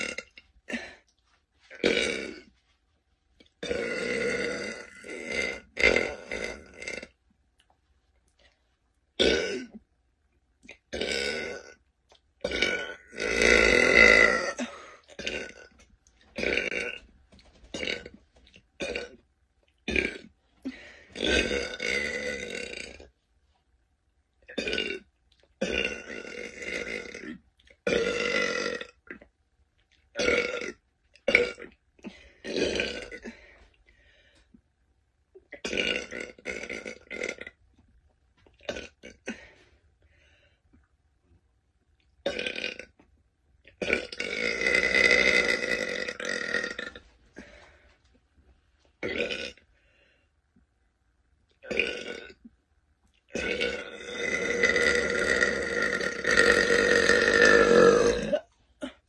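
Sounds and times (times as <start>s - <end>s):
woman burping: 0.0s - 1.1s, 3.6s - 7.1s, 9.2s - 9.8s, 12.4s - 15.8s, 16.4s - 17.0s, 17.8s - 18.2s, 18.8s - 19.2s, 19.9s - 23.0s, 24.5s - 29.3s, 30.1s - 33.5s, 35.4s - 37.6s, 38.6s - 39.5s, 42.2s - 42.9s, 43.7s - 47.6s, 49.0s - 49.6s, 51.6s - 52.4s, 53.3s - 59.0s.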